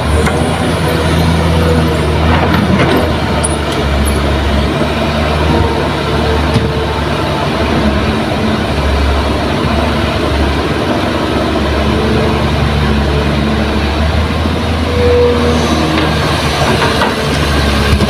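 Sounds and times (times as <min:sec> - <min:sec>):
excavator diesel engine under load: 0:00.0 - 0:18.0.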